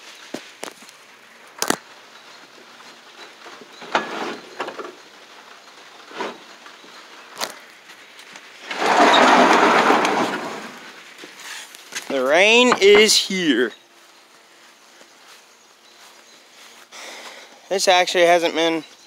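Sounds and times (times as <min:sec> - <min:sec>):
door scraping open: 0:03.8 - 0:05.0, 0:08.6 - 0:11.7.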